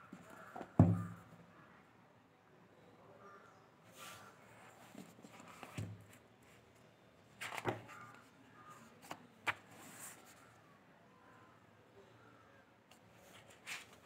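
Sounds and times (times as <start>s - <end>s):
book cover rustle and knock: 0.1s - 1.2s, 4.9s - 6.2s, 7.4s - 8.2s
page turning: 7.4s - 8.2s, 9.0s - 10.4s, 13.3s - 14.0s.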